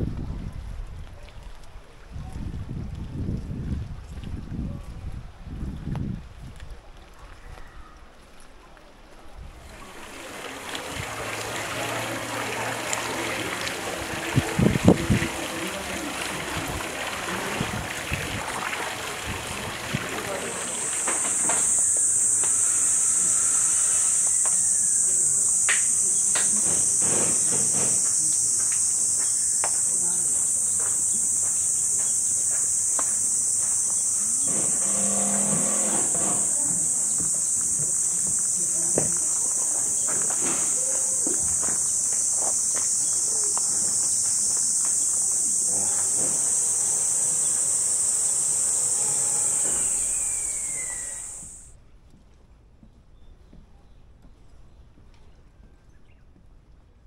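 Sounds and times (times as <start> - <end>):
insects chirping chorus: 9.6 - 51.7.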